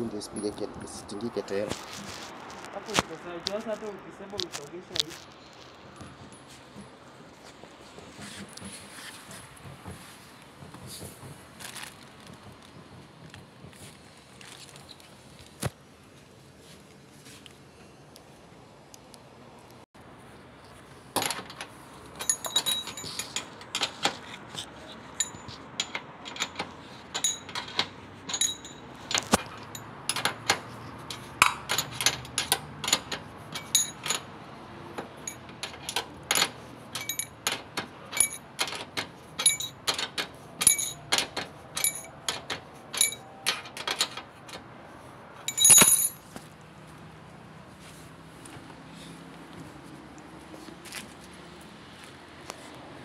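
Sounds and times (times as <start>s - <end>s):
metallic clicks and clinks: 21.2s - 24.2s, 25.1s - 34.4s, 35.0s - 44.6s, 45.4s - 46.3s.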